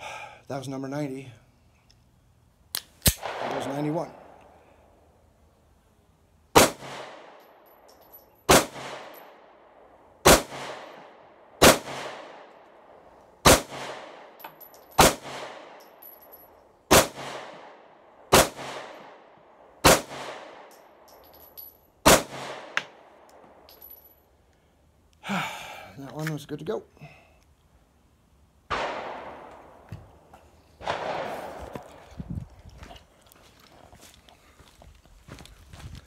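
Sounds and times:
pistol shots with ringing echo: 3.1 - 4.4, 6.5 - 7.8, 8.5 - 9.6, 10.2 - 12.5, 13.4 - 21.2, 22.0 - 23.1, 28.7 - 29.9, 30.8 - 31.6.

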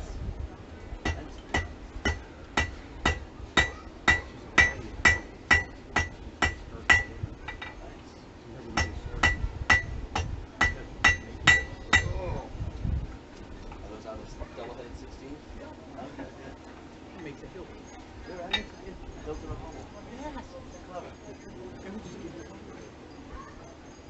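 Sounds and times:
hammer striking metal on anvil: 1.0 - 7.8, 8.8 - 12.1.

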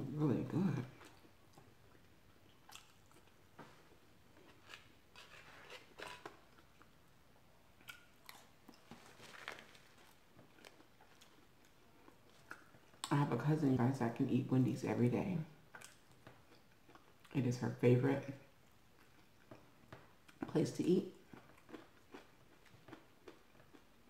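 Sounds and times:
person chewing crunchy food: 1.0 - 7.1, 7.7 - 13.1, 15.7 - 17.3, 18.7 - 20.4, 21.1 - 24.0.

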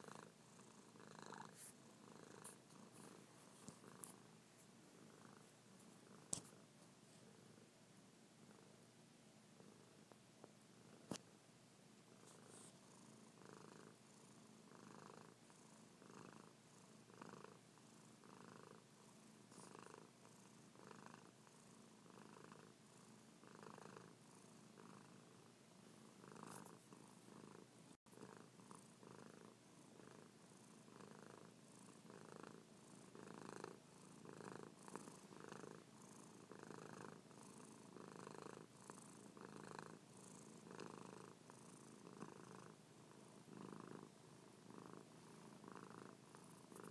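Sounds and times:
cat purring: 0.0 - 7.7, 8.4 - 8.9, 9.5 - 11.2, 12.1 - 46.9.

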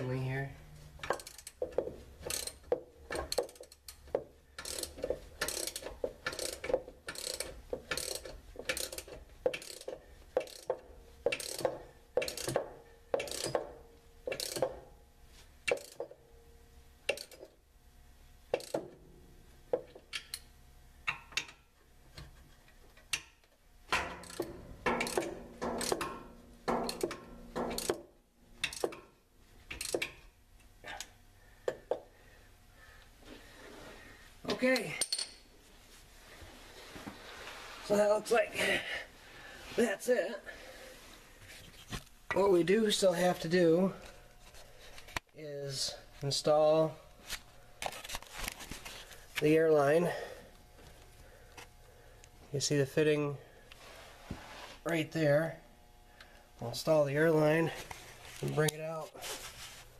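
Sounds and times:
ratchet wrench clicking: 1.0 - 14.8, 15.6 - 16.2, 17.1 - 17.5, 18.5 - 19.0, 20.1 - 20.4, 24.0 - 28.0, 28.6 - 29.0, 29.7 - 30.2.

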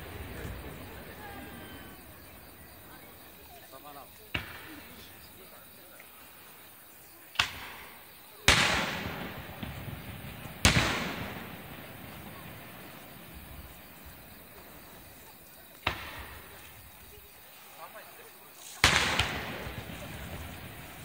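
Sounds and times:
firework shells bursting: 7.3 - 14.7, 18.7 - 21.0.

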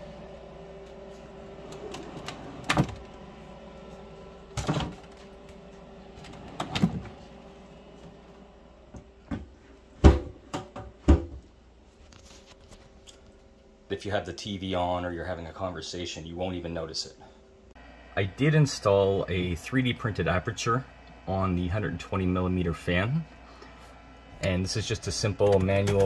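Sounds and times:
exhaust fan humming: 0.0 - 26.0
cabinet door shutting thumps: 9.3 - 11.4
knocks on wooden cabinet door: 9.3 - 11.4.

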